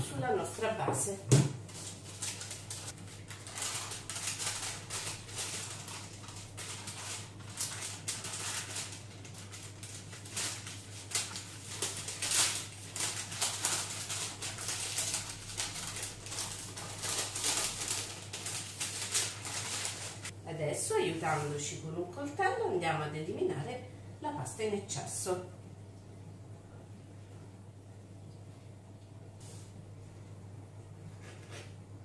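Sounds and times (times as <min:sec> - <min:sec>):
steady low hum: 0:00.0 - 0:32.0
parchment paper crinkling: 0:01.7 - 0:20.4.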